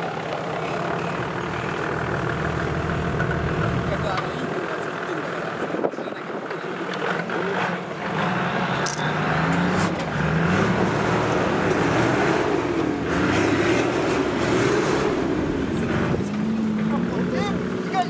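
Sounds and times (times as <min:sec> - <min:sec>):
truck engine revving: 0:00.0 - 0:18.0.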